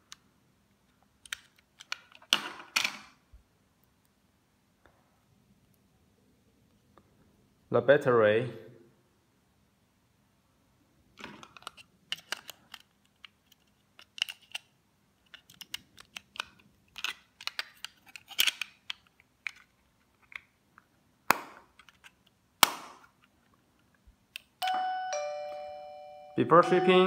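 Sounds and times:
plastic case snapping shut: 22.6s - 23.1s
doorbell chime: 24.6s - 27.0s.

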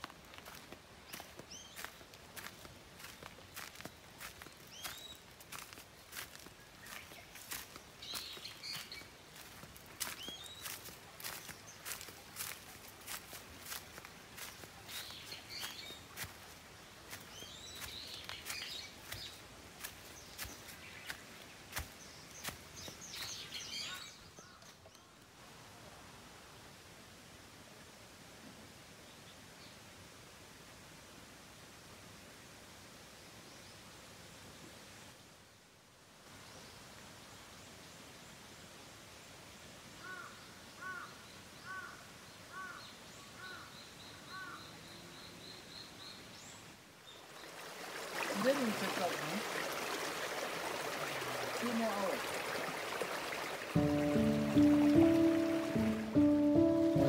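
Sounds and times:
footsteps crunching on dry leaves: 0.0s - 24.1s
birds chirping: 0.4s - 25.0s, 53.8s - 57.0s.

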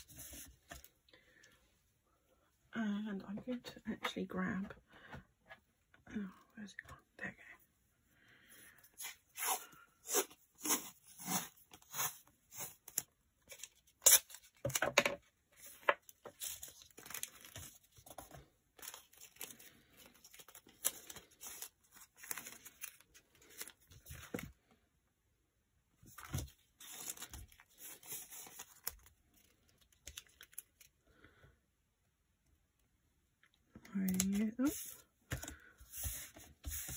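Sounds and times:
paper rustling and crinkling: 0.0s - 0.9s, 15.6s - 24.5s, 26.0s - 30.9s, 34.1s - 36.9s.

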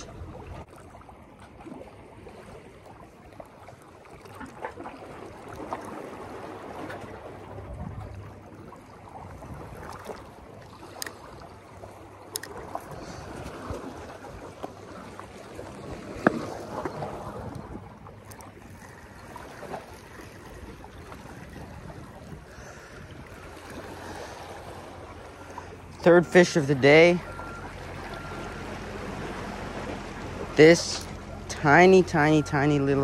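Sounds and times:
small waves sloshing on rocks: 0.0s - 33.0s
fishing tackle clicks: 12.3s - 12.6s.

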